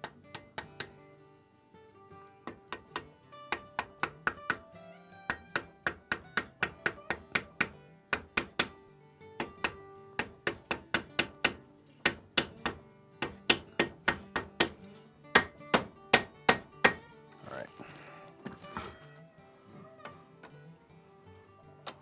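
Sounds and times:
hammer tapping wooden wedge: 0:00.0 - 0:01.0, 0:02.2 - 0:04.7, 0:05.3 - 0:08.8, 0:09.4 - 0:17.0.

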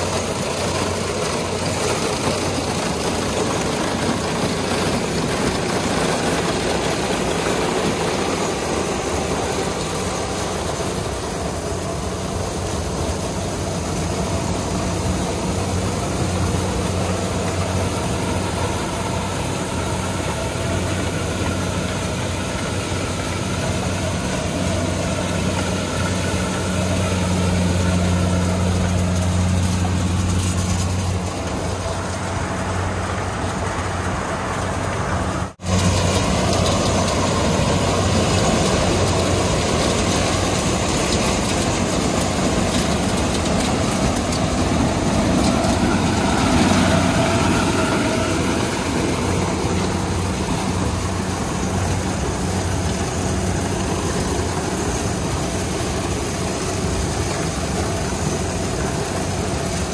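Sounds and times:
combine harvester engine hum: 0:00.0 - 0:59.9.

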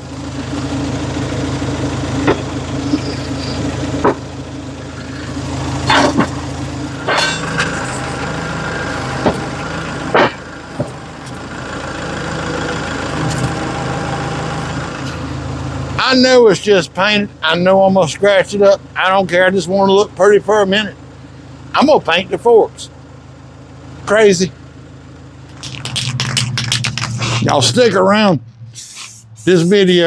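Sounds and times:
diesel tractor engine idling: 0:00.0 - 0:30.0
metal clanks and knocks: 0:05.9 - 0:06.4, 0:07.0 - 0:08.1, 0:10.1 - 0:11.0.

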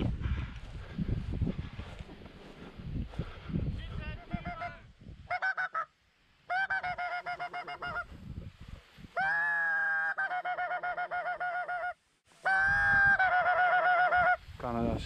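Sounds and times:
goose honking: 0:06.5 - 0:08.1.

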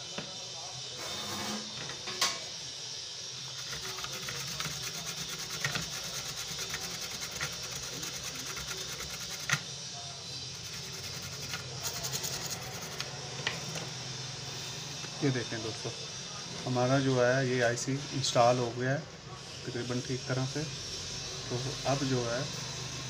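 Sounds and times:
brush scratching circuit board: 0:03.4 - 0:09.7, 0:10.5 - 0:13.2.

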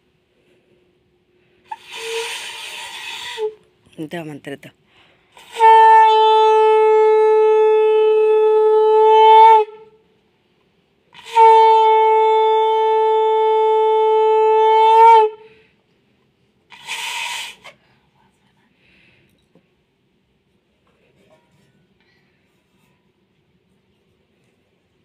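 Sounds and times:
conch shell blasts: 0:01.7 - 0:03.6, 0:05.3 - 0:10.0, 0:11.2 - 0:15.5, 0:16.7 - 0:17.7.

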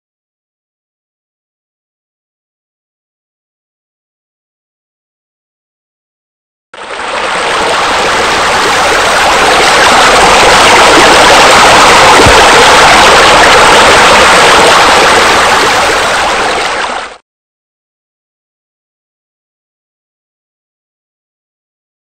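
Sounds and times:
rushing water: 0:06.8 - 0:17.2.

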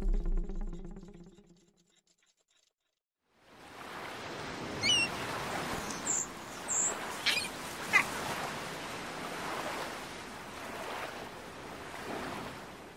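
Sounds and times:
short high bird-like chirps: 0:04.8 - 0:05.2, 0:05.9 - 0:08.1.

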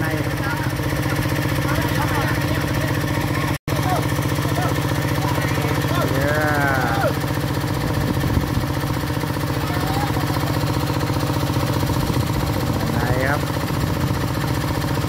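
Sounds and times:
water pump engine running: 0:00.0 - 0:15.0
man calling out: 0:01.6 - 0:07.3, 0:12.4 - 0:14.1.

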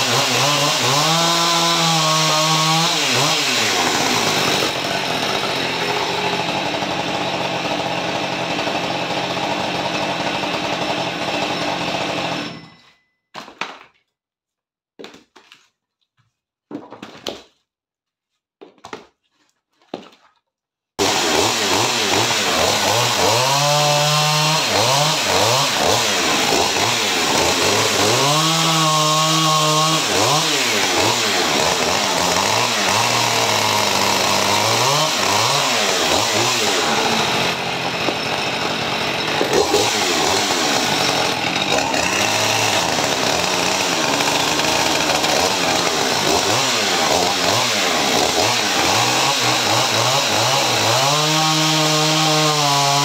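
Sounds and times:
chainsaw running: 0:00.0 - 0:12.8, 0:21.0 - 0:53.0.

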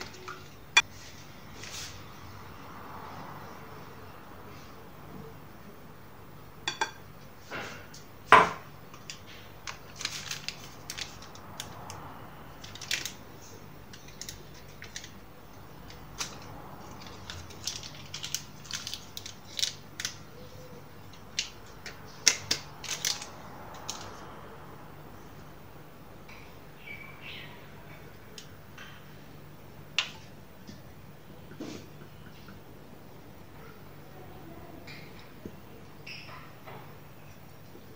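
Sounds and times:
paper rustling: 0:09.2 - 0:11.6.

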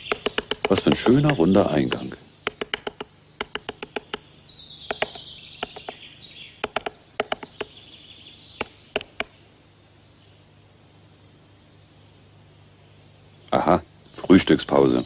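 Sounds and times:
woodpecker pecking wood: 0:00.0 - 0:06.0, 0:06.6 - 0:07.8, 0:08.6 - 0:09.4
bird twittering: 0:00.0 - 0:10.4.

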